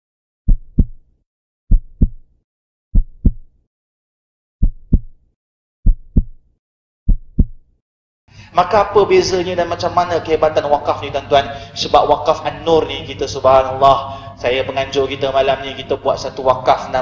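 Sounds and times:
heartbeat thumps: 0.5s - 1.0s, 1.7s - 2.3s, 2.9s - 3.6s, 4.6s - 5.2s, 5.8s - 6.4s, 7.1s - 7.7s.

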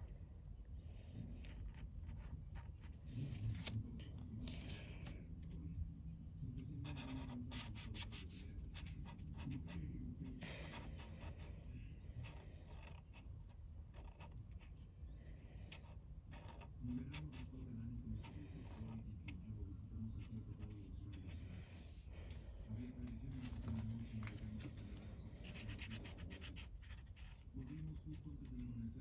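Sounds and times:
marker scratching on paper: 1.4s - 3.4s, 6.8s - 9.8s, 10.5s - 11.6s, 12.2s - 13.3s, 13.9s - 14.8s, 15.7s - 19.4s, 24.0s - 28.2s.

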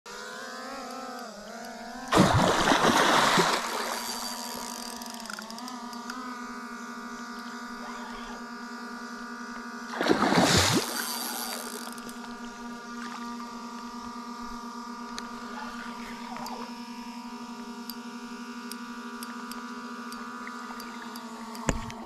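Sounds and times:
loud splash in water: 2.1s - 3.9s, 10.0s - 10.9s.

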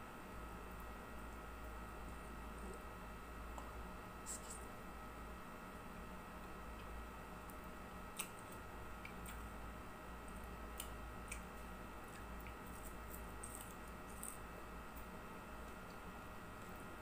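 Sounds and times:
faint steady hum: 0.0s - 17.0s
fingers picking at food: 6.7s - 9.5s, 10.2s - 16.0s
chewing: 8.1s - 9.5s, 10.3s - 16.8s.

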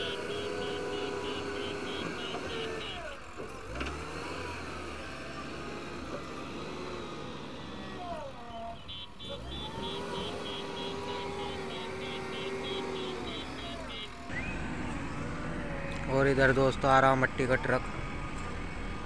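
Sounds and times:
reversing alarm beeping: 0.0s - 3.2s, 8.6s - 14.8s
backhoe diesel engine revving: 0.0s - 19.0s.

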